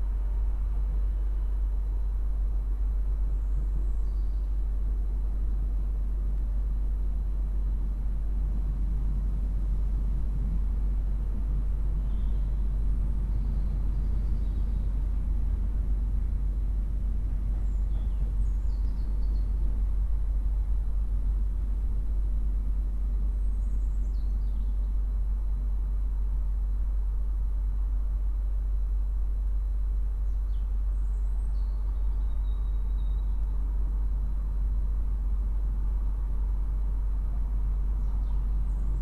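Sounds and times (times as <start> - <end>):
steady low rumble: 0.0 - 39.0
faint bird chirps: 3.2 - 4.7, 12.0 - 15.1, 17.5 - 19.7, 23.2 - 25.1, 29.6 - 33.6, 37.8 - 39.0.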